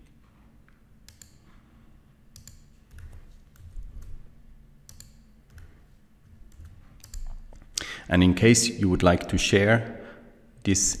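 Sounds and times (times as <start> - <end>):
mouse and keyboard clicks: 1.1 - 1.6, 2.3 - 4.2, 4.9 - 5.8, 6.5 - 7.6.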